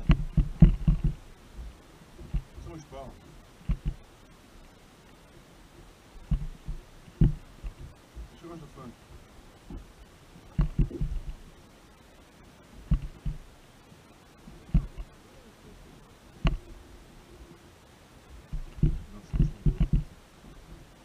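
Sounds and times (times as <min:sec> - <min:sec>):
dull low thumps and knocks: 0:00.0 - 0:02.8, 0:03.6 - 0:04.1, 0:06.2 - 0:08.4, 0:09.0 - 0:11.5, 0:12.8 - 0:13.5, 0:14.6 - 0:15.1, 0:16.4 - 0:16.8, 0:18.3 - 0:20.7.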